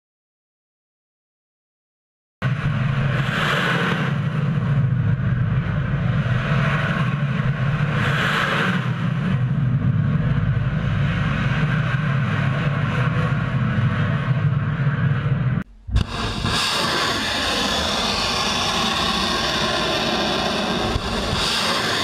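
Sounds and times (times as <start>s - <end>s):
missiles launching roar: 15.8s - 22.0s.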